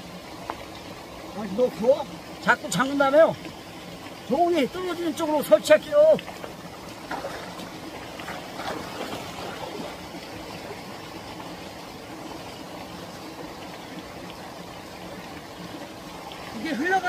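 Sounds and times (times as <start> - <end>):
small waterfall rushing: 0.0 - 17.0
light splashing in water: 6.1 - 10.0.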